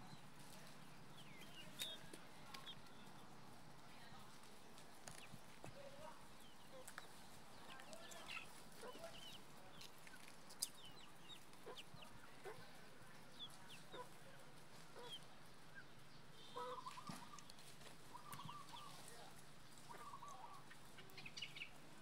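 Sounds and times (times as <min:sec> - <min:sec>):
chickens clucking: 0:00.0 - 0:22.0
hen call: 0:16.4 - 0:17.5, 0:19.8 - 0:21.7.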